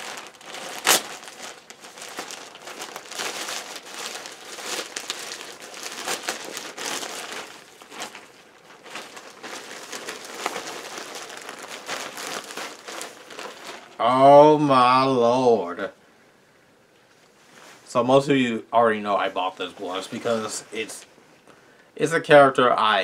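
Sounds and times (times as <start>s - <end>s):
wrapping crinkling and rustling: 0.0s - 14.3s, 19.1s - 21.1s.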